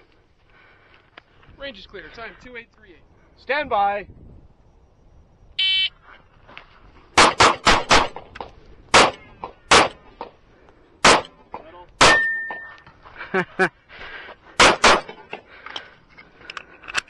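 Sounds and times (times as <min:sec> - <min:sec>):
shot timer beep: 0:04.7 - 0:05.9
pistol shots: 0:07.2 - 0:08.2, 0:08.9 - 0:10.0, 0:11.0 - 0:11.4, 0:12.0 - 0:12.6, 0:14.6 - 0:15.1.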